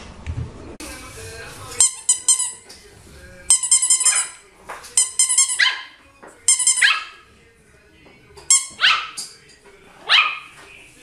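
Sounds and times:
squeaky toy squeaks: 0:01.8 - 0:02.6, 0:03.5 - 0:04.4, 0:05.0 - 0:07.2, 0:08.5 - 0:09.2
puppy yapping: 0:05.5 - 0:06.0, 0:06.8 - 0:07.2, 0:08.7 - 0:09.2, 0:10.1 - 0:10.6.

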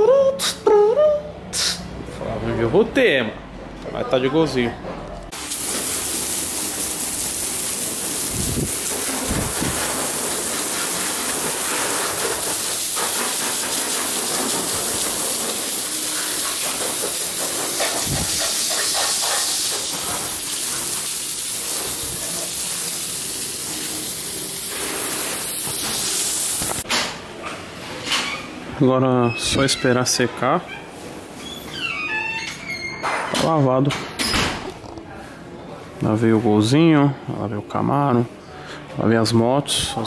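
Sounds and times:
hose spray hissing on car: 0:05.4 - 0:26.8.

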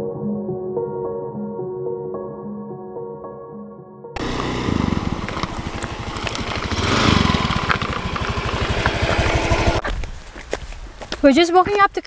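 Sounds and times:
motorbike engine running: 0:04.2 - 0:09.8
road and wind noise: 0:04.2 - 0:12.0.

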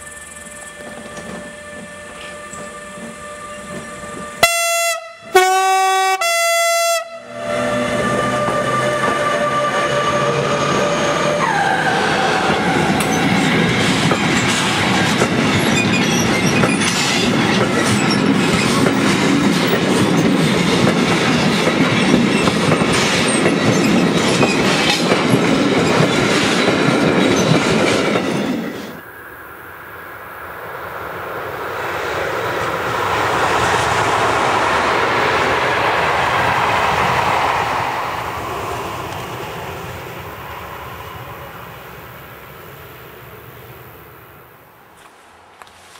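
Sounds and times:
railcar approaching: 0:00.0 - 0:45.9
locomotive horn: 0:00.7 - 0:13.2
freight train wheels clattering: 0:12.3 - 0:29.0.

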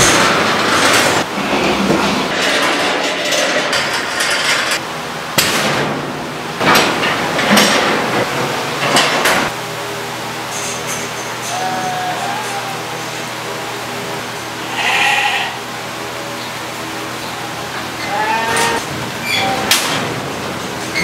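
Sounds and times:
metal gates clanging and rattling: 0:00.0 - 0:04.8, 0:05.4 - 0:09.6, 0:17.7 - 0:21.0.

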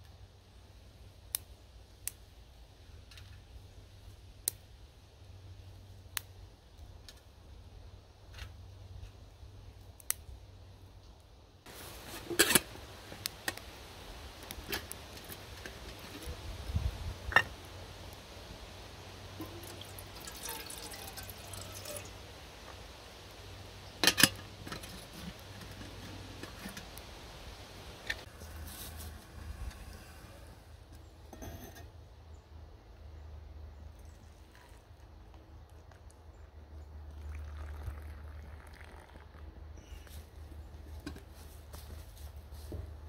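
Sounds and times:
twig fire crackling: 0:01.0 - 0:31.1
water pouring into kettle: 0:19.4 - 0:22.2, 0:37.1 - 0:39.4.

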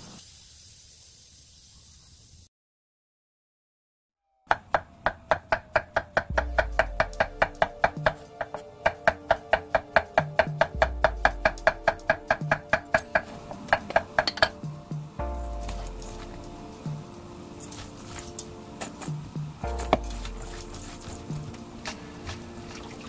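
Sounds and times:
background music: 0:05.0 - 0:23.0.

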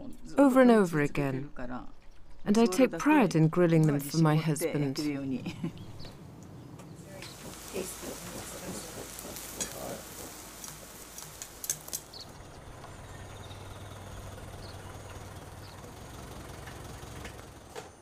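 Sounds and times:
steady low hum: 0:05.3 - 0:17.7
charcoal grill crackling and sizzling: 0:05.7 - 0:17.9.

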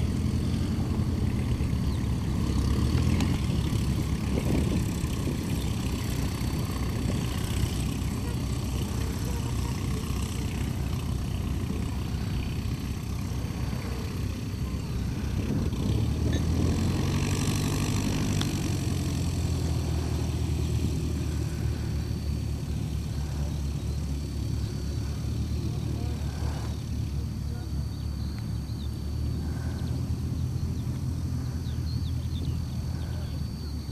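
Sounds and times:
propeller plane engines idling: 0:00.0 - 0:33.9.

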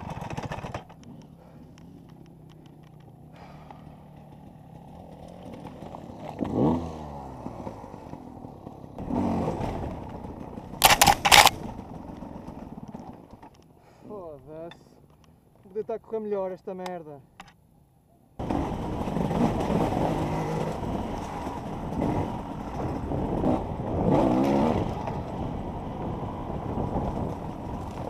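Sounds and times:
motorcycle engine revving: 0:00.0 - 0:12.8, 0:18.4 - 0:28.0.

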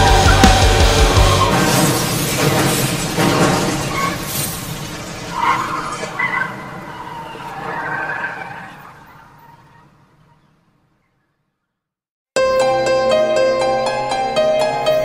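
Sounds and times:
distorted rock chord ringing: 0:00.0 - 0:01.6, 0:12.4 - 0:15.0
sustained guitar notes: 0:00.0 - 0:01.7, 0:12.4 - 0:15.0.

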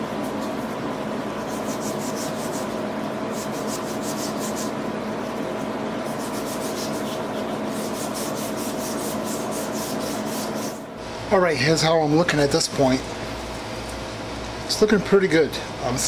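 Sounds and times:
knife blade scratching on wire wheel: 0:01.4 - 0:04.8, 0:06.0 - 0:10.9.

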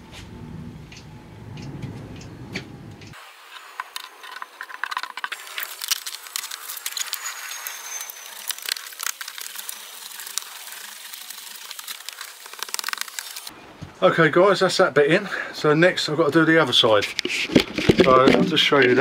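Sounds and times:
plastic sheet crackling and flexing: 0:03.1 - 0:13.5.

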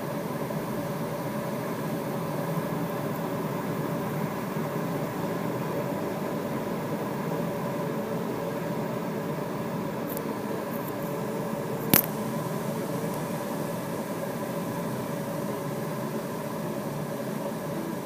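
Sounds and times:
sharp click: 0:11.8 - 0:12.2.

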